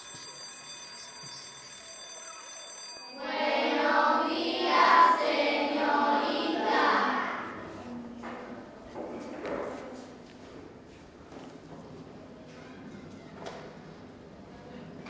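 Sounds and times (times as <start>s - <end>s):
high ringing tone: 0.0s - 3.8s
children singing in unison: 3.2s - 7.6s.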